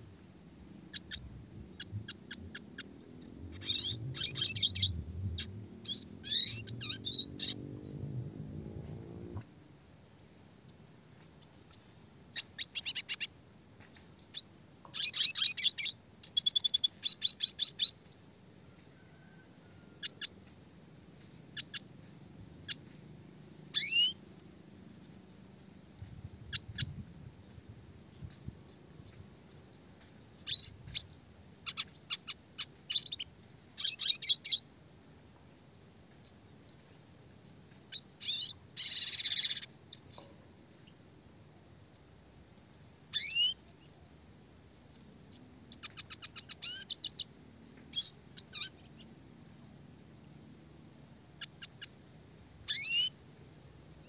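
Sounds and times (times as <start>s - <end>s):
bird chirping and trilling: 0.9s - 8.0s, 12.4s - 13.3s, 23.7s - 24.2s, 28.2s - 34.6s, 37.4s - 40.4s, 43.1s - 43.6s, 44.9s - 47.3s, 47.9s - 49.0s, 52.7s - 53.1s.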